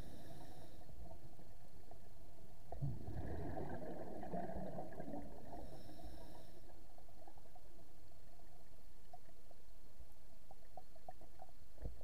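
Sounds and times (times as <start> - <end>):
muffled underwater rumble: 0.0 - 12.0
scuba exhaust bubbles: 2.7 - 7.8.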